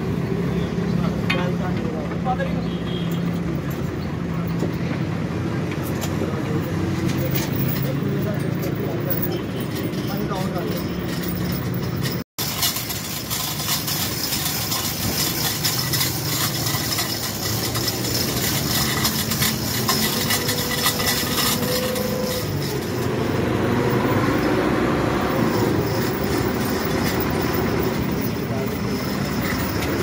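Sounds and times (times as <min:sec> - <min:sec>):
street and vehicle noise: 0:00.0 - 0:30.0.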